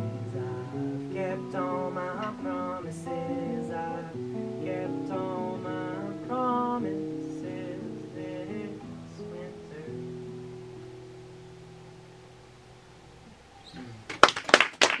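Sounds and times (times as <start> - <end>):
man singing: 0.0 - 10.2
acoustic guitar: 0.0 - 14.2.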